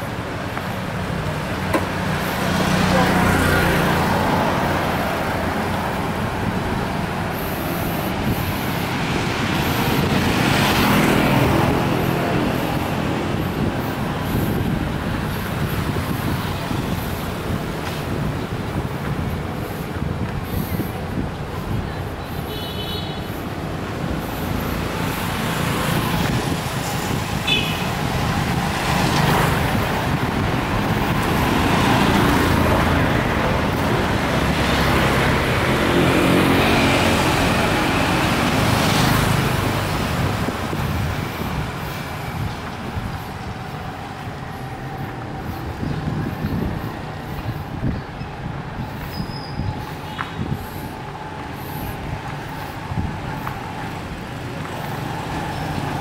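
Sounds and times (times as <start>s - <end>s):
passing vehicle engine: 23.7s - 47.9s.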